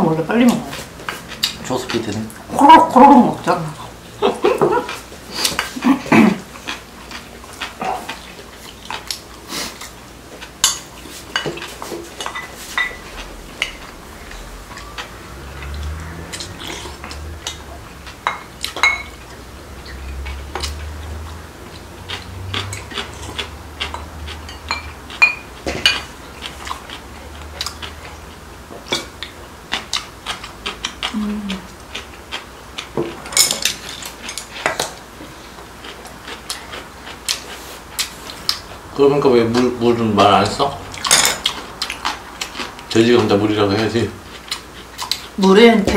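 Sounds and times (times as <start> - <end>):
chopsticks clinking against bowls: 10.6 - 15.1, 15.7 - 19.3, 22.1 - 26.7.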